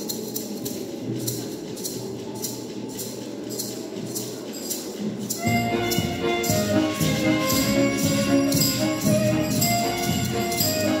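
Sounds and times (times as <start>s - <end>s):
jingling percussion: 0.0s - 11.0s.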